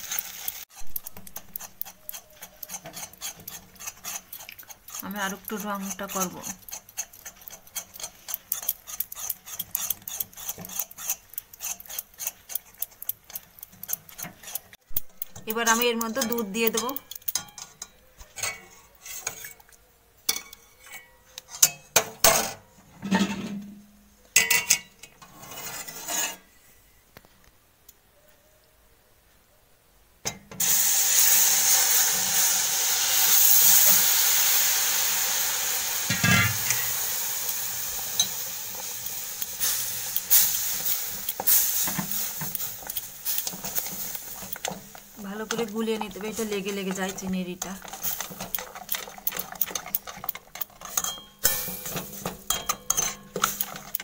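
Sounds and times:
loud sizzle of caramel: 0.0 - 12.8, 30.6 - 50.2, 51.3 - 54.0
metal spoon scraping a pan: 0.0 - 19.7, 20.3 - 23.8, 24.4 - 26.8, 30.6 - 54.0.

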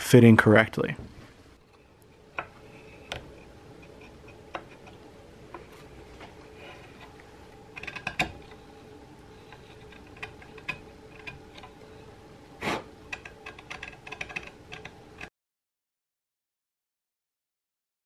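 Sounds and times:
wood chisel paring chips: 13.1 - 15.3.

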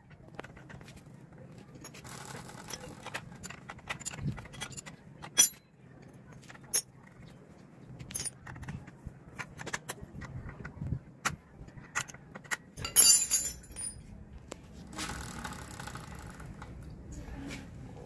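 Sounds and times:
metallic clicks of chain and tools: 1.8 - 5.6, 12.8 - 14.0
chain rattling over sprocket: 12.8 - 14.0
loud metallic jangle: 12.8 - 14.0.

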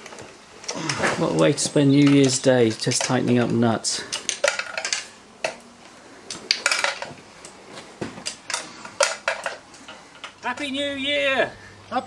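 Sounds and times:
metal tools clinking: 2.0 - 5.6, 6.4 - 7.2.

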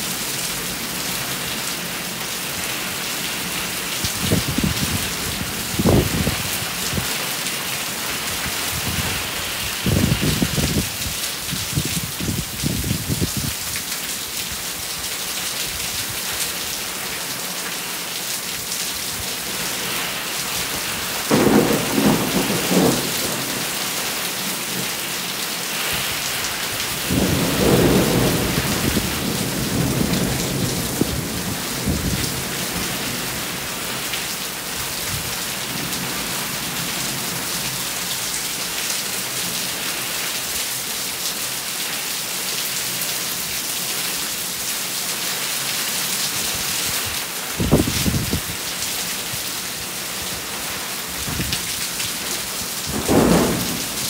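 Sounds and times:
steady rain: 0.0 - 54.0
thunder rumbling: 21.3 - 23.8, 27.0 - 33.4, 52.8 - 54.0.

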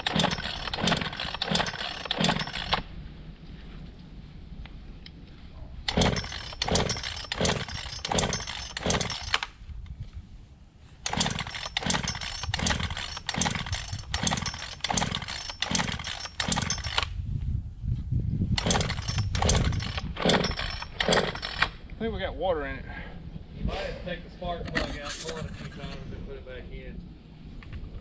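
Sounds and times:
chainsaw engine pulsing: 0.0 - 2.9, 5.8 - 9.5, 11.0 - 17.1, 18.6 - 21.8.

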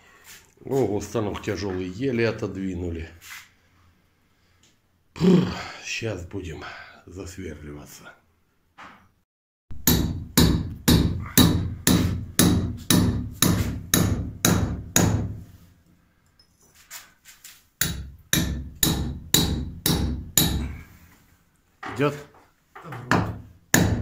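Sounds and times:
hammer striking steel chisel: 9.8 - 15.4, 17.8 - 20.8, 23.1 - 24.0.

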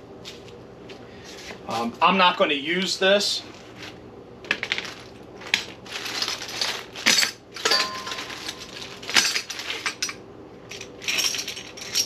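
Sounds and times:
metal hardware clinking and rattling: 6.1 - 12.0
metal piece ringing: 7.6 - 8.9.

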